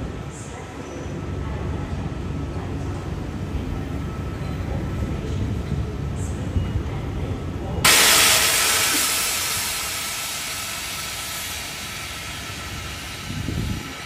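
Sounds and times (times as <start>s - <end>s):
train low rumble: 0.0s - 14.0s
compressed air hissing: 7.9s - 14.0s.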